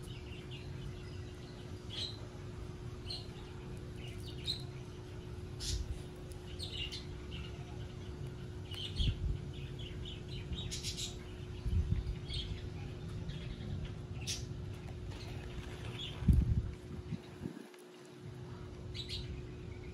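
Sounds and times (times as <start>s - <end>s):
small birds chirping: 0.0s - 19.9s.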